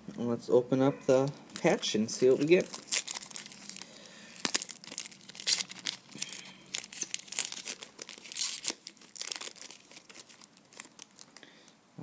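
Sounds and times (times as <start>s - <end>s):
foil wrapper tearing and crinkling: 1.5s - 11.4s.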